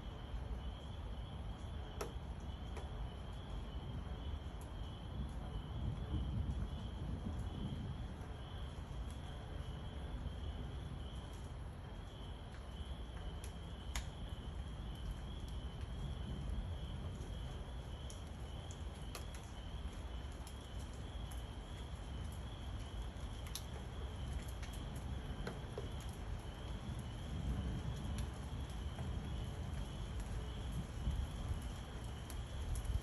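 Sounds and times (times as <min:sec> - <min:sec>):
low thunder rumble: 0:03.4 - 0:12.3, 0:13.2 - 0:18.6, 0:23.8 - 0:33.0
faint sharp ticks: 0:13.4 - 0:14.1.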